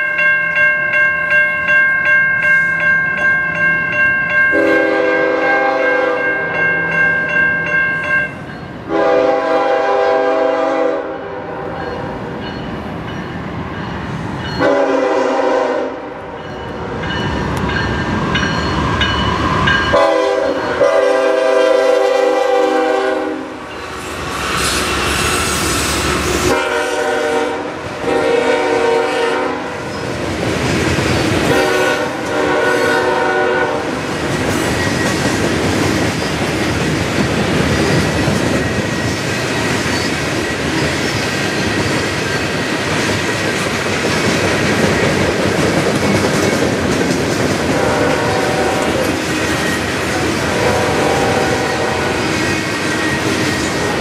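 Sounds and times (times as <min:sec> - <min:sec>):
locomotive air horn blasts: 0:04.6 - 0:06.4, 0:08.9 - 0:11.8, 0:14.6 - 0:16.2, 0:19.9 - 0:23.6, 0:26.4 - 0:29.8, 0:31.4 - 0:34.0, 0:47.7 - 0:49.2, 0:50.5 - 0:52.3
train wheels clattering over rail joints: 0:34.2 - 0:50.4.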